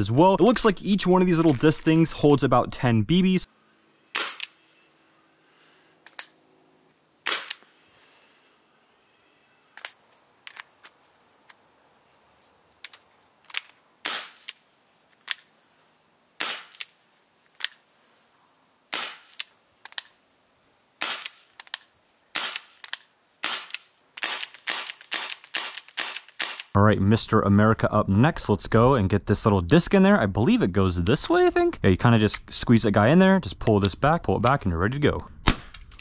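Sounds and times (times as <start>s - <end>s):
airsoft revolver shots: 4.1s - 4.6s, 7.2s - 7.6s, 14.0s - 14.5s, 16.4s - 16.9s, 18.9s - 19.4s, 21.0s - 21.5s, 22.3s - 26.7s, 35.4s - 35.9s.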